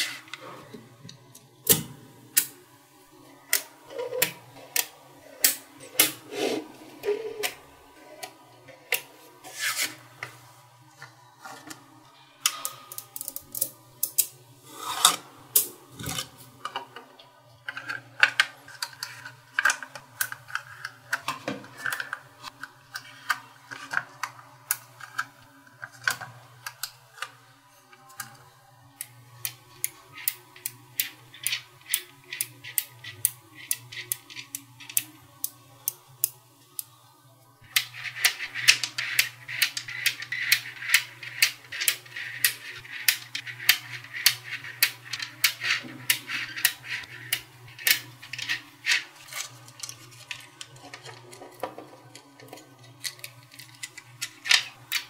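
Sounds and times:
magnet balls rubbing: 0:29.4 - 0:36.1, 0:37.6 - 0:55.0
magnet balls clicking together: 0:29.4 - 0:36.4, 0:37.6 - 0:51.3.

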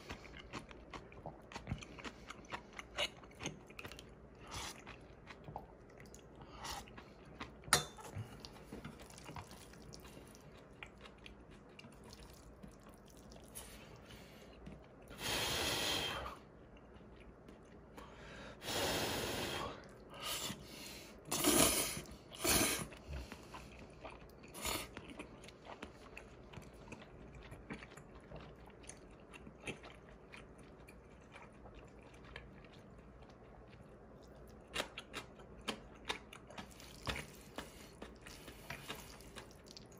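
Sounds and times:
person chewing: 0:00.0 - 0:15.2, 0:16.4 - 0:18.2, 0:19.8 - 0:39.9
person slurping: 0:21.3 - 0:23.1.

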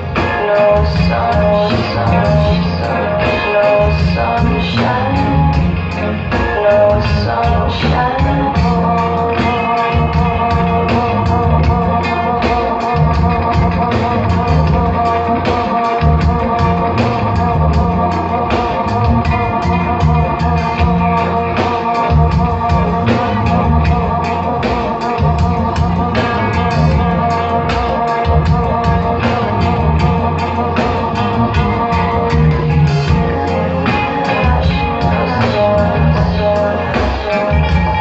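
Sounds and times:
drum kit beat: 0:00.0 - 0:38.0
electric guitar chords: 0:00.0 - 0:38.0
keyboards holding chords: 0:00.0 - 0:38.0
person singing: 0:00.0 - 0:38.0.

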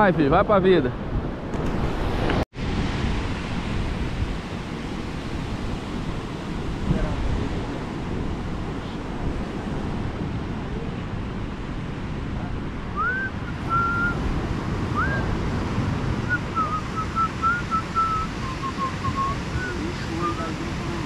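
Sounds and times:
surf washing on a beach: 0:00.0 - 0:21.0
wind on microphone: 0:00.0 - 0:21.0
person whistling a tune: 0:13.0 - 0:14.2, 0:15.0 - 0:15.2, 0:16.3 - 0:20.4.

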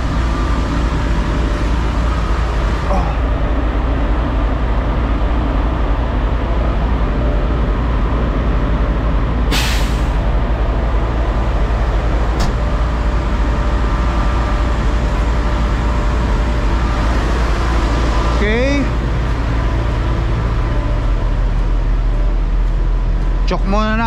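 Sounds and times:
diesel engine idling: 0:00.0 - 0:24.0
air brake hiss: 0:09.5 - 0:10.2.

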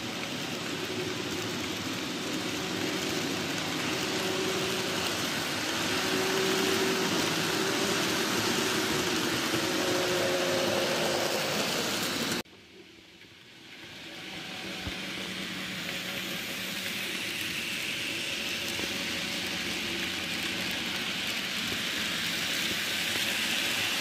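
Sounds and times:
electric motor whine: 0:01.0 - 0:12.4.

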